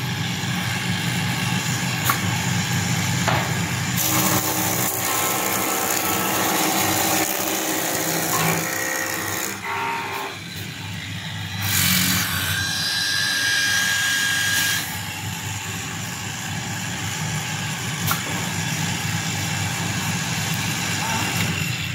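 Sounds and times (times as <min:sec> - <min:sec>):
machine mechanical whine: 0:08.2 - 0:21.9.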